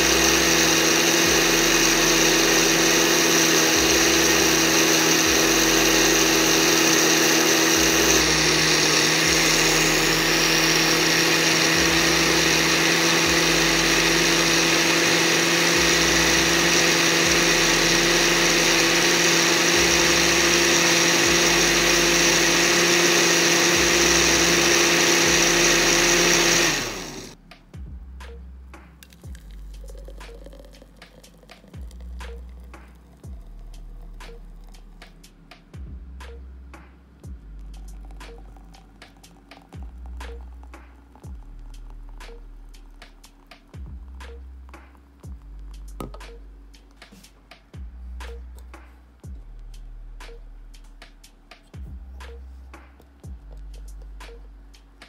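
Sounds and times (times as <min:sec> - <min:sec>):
electric blender running: 0:00.0 - 0:27.4, 0:29.1 - 0:35.2, 0:37.6 - 0:44.2.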